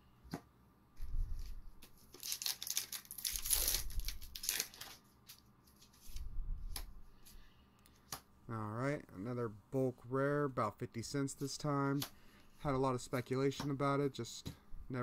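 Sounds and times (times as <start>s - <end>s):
wrapper tearing and crinkling: 2.1s - 6.0s.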